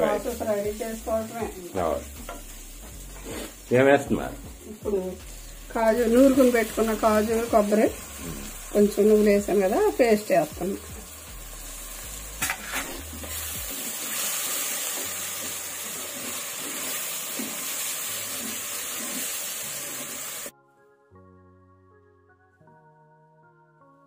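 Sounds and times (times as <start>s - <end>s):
food sizzling: 0.0s - 20.5s
faint background music: 0.0s - 24.0s
spatula scraping: 2.3s - 3.6s, 12.4s - 20.4s.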